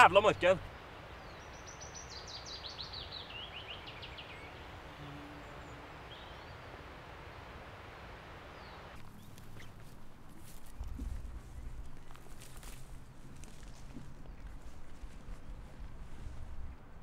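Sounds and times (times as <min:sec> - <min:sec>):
songbird chirping: 0:00.0 - 0:17.0
river water rushing: 0:04.6 - 0:10.1
footsteps on dry grass: 0:09.0 - 0:17.0.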